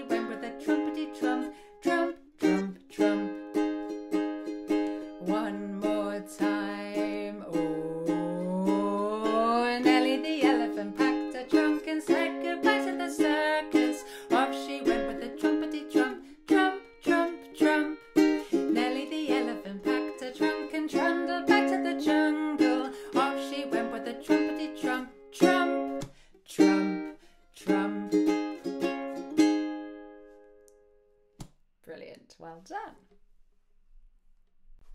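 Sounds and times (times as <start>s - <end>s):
woman singing: 0.0s - 3.8s, 4.9s - 28.7s
ukulele strumming: 0.0s - 30.9s.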